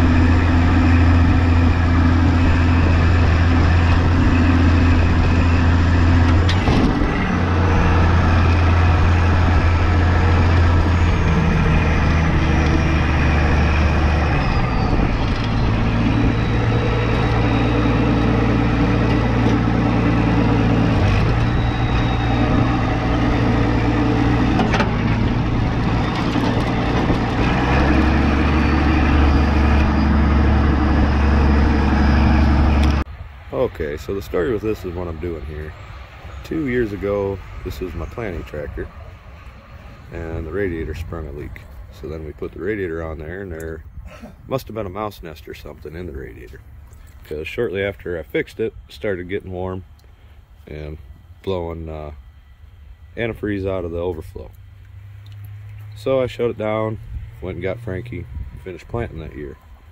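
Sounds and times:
tractor engine running: 0:00.0 - 0:59.9
faint high whine: 0:32.8 - 0:59.9.

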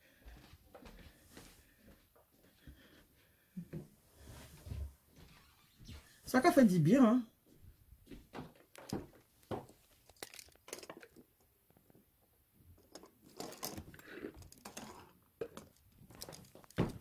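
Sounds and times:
rustling and crinkling: 0:08.0 - 0:17.0.

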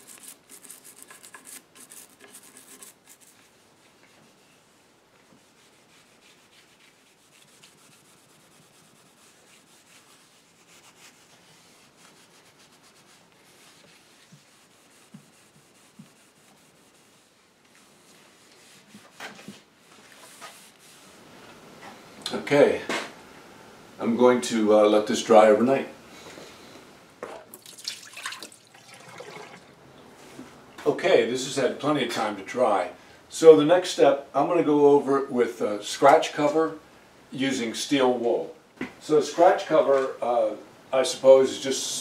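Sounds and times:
cloth rubbing on wood: 0:00.0 - 0:21.3.

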